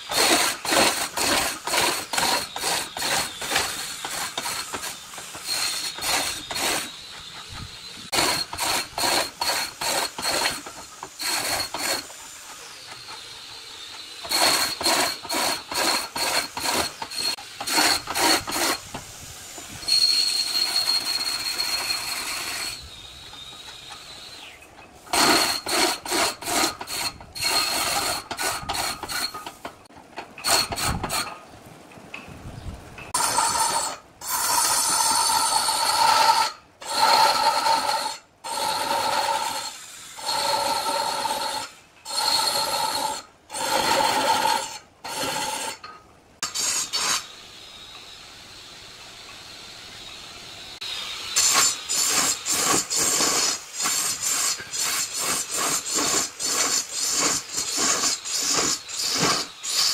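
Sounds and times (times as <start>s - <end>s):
tool rasping against wood: 0.0s - 13.3s, 13.9s - 19.0s, 25.1s - 29.6s, 33.2s - 45.8s, 51.4s - 59.9s.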